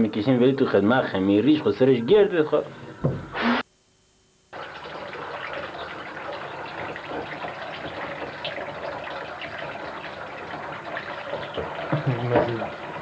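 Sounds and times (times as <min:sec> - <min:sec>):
tap water running and splashing: 0:04.5 - 0:13.0.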